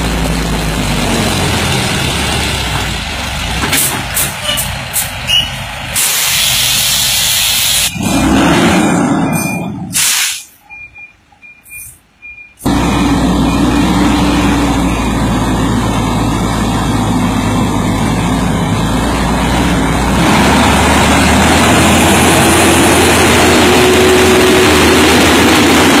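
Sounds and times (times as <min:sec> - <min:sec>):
diesel truck engine rumbling: 0:00.0 - 0:26.0
air brakes hissing: 0:09.9 - 0:10.7.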